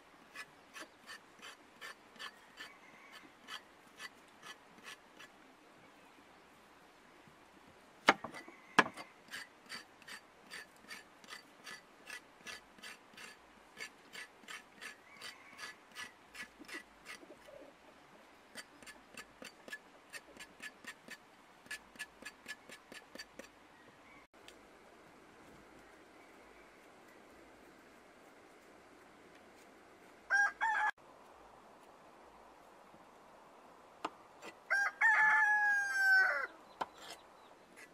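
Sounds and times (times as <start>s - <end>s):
knife scraping carrot skin: 3.4s - 5.3s, 9.3s - 17.2s.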